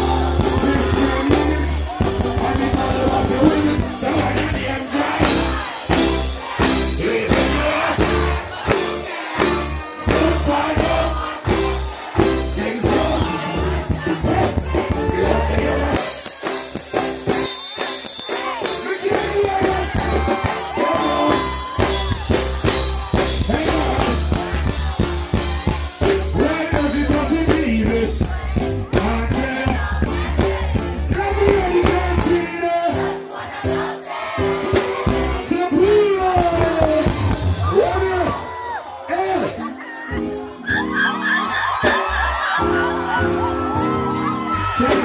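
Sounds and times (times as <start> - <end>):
person singing: 0.0 - 5.6, 9.7 - 16.2
heavy bass beat: 0.0 - 17.5, 18.4 - 38.0.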